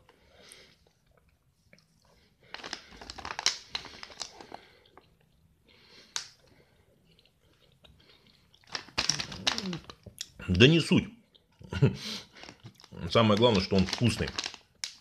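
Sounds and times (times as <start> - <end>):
plastic pouch crinkling: 2.4 - 4.8, 8.6 - 10.1, 12.3 - 15.0.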